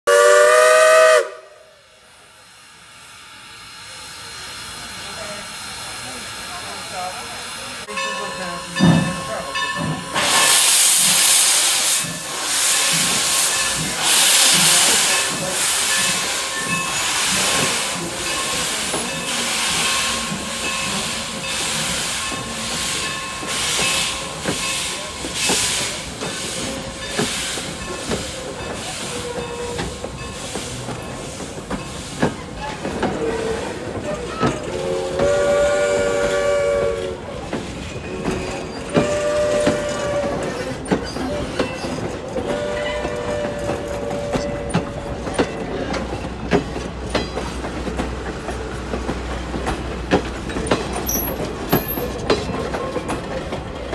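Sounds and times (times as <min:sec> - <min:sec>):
steam whistle chord: 0:00.1 - 0:01.8
steam locomotive chuffing: 0:00.1 - 0:53.9
coaches clicking over rail joints: 0:07.8 - 0:53.9.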